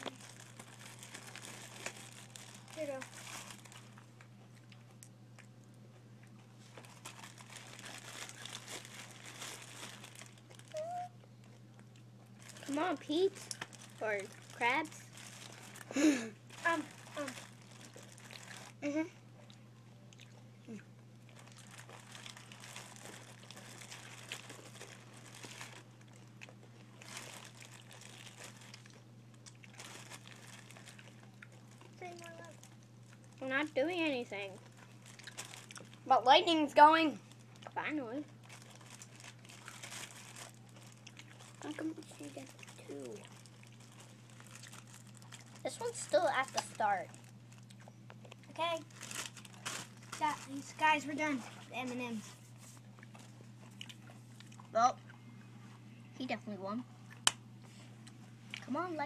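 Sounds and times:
paper and cardboard crinkling: 0:00.0 - 0:04.1, 0:06.6 - 0:11.1, 0:12.4 - 0:15.9, 0:16.5 - 0:18.8, 0:21.4 - 0:25.9, 0:27.0 - 0:29.0, 0:29.7 - 0:32.7, 0:38.1 - 0:47.4, 0:48.5 - 0:53.4.

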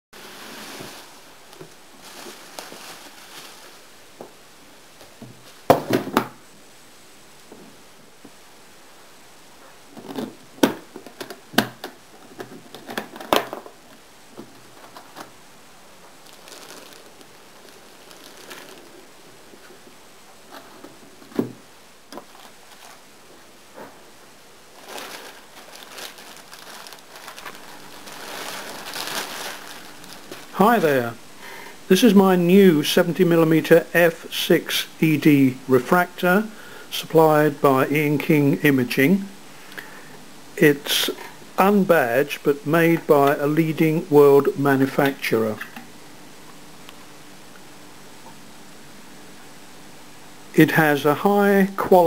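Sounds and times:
plastic bag crinkling: 0:00.2 - 0:04.0, 0:16.0 - 0:19.8, 0:22.1 - 0:23.1, 0:24.7 - 0:31.2
cardboard and bubble wrap rustling: 0:00.2 - 0:04.3, 0:09.9 - 0:15.4, 0:16.0 - 0:24.1, 0:24.7 - 0:31.2.

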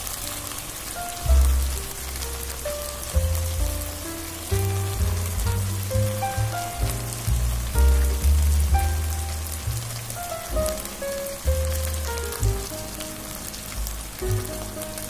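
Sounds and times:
onions frying in oil: 0:00.0 - 0:15.0
music with heavy bass: 0:03.1 - 0:15.0.

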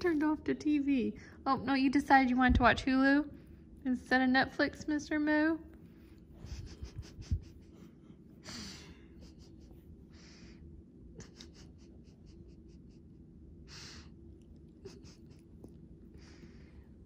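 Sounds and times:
soft puffs of breath: 0:05.8 - 0:11.9, 0:13.6 - 0:14.3, 0:16.1 - 0:17.0.

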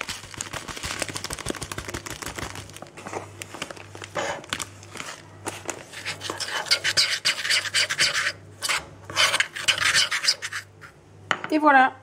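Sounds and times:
plastic bag crinkling: 0:00.0 - 0:05.9.

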